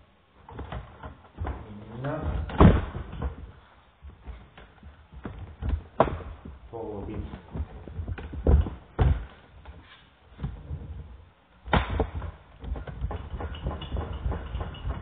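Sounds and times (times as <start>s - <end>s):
dull thumps and knocks: 0.4s - 15.0s
light clattering: 12.0s - 15.0s.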